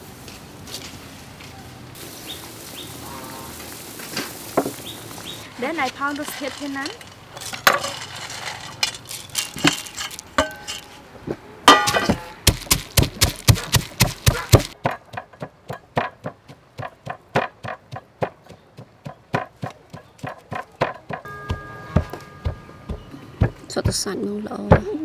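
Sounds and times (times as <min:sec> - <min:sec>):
stone pestle pounding in mortar: 0:11.7 - 0:24.1.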